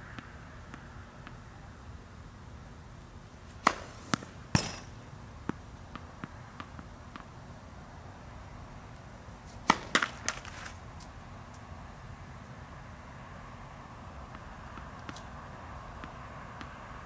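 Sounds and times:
racket striking tennis ball: 3.4s - 7.3s, 9.4s - 10.8s.

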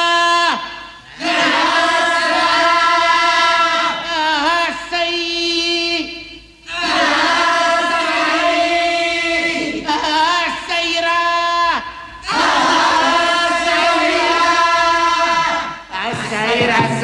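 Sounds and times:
person chanting: 8.0s - 17.0s.

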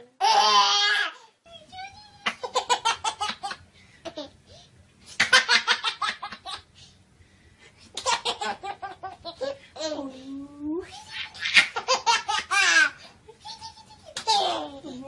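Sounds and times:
baby laughing: 2.2s - 4.4s, 8.0s - 10.1s, 11.0s - 15.0s.

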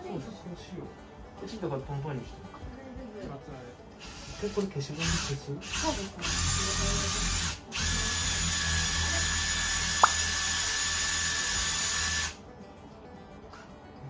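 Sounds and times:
electric drill whining: 5.0s - 12.4s
sharp click: 10.0s - 10.2s.

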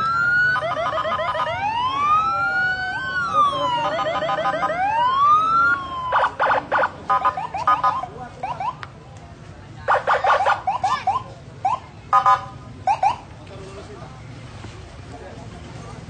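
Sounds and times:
siren chirping bursts: 0.0s - 8.8s
siren yelp warbling: 0.0s - 8.8s, 9.9s - 13.2s
sirens wailing: 0.0s - 8.8s, 9.9s - 13.3s.

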